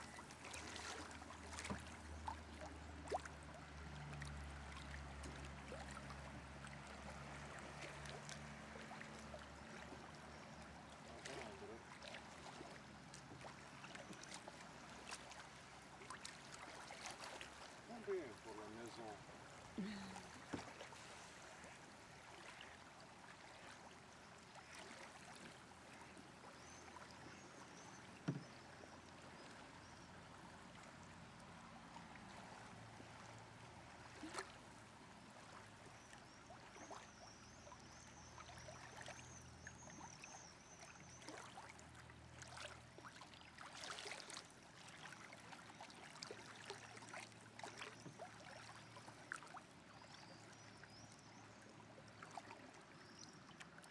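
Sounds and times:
water swishing and lapping: 0.0s - 53.9s
knocks against boat: 28.2s - 28.6s.

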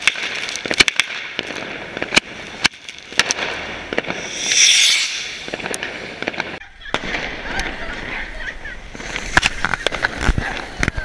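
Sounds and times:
firecrackers cracking: 0.0s - 8.2s
firework fountain fizzing: 0.0s - 10.8s.

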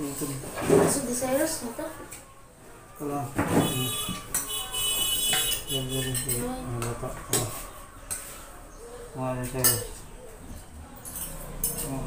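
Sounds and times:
metal spoon scraping in a pot: 4.2s - 8.5s.

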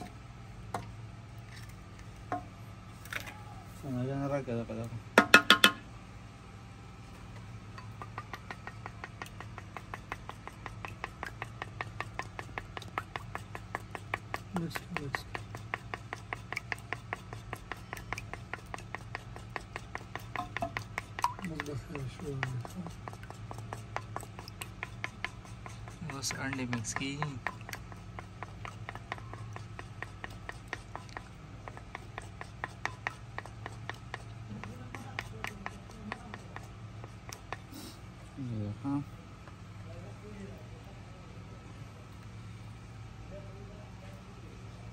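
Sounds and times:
steady low hum: 0.0s - 44.9s
sharp knocks: 5.2s - 5.8s
wooden spoon tapping clay bowl: 5.2s - 5.9s, 7.2s - 37.7s.

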